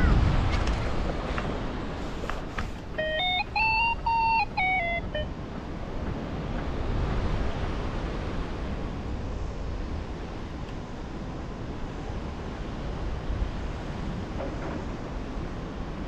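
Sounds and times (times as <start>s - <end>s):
wind rushing over microphone: 0.0s - 3.0s
electronic tones stepping down: 2.9s - 5.3s.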